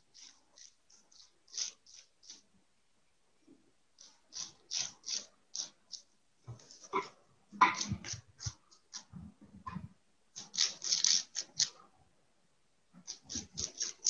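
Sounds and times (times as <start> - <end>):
paintbrush scratching on bubble wrap: 0.0 - 2.5, 4.0 - 9.4, 10.4 - 11.8, 13.0 - 14.0.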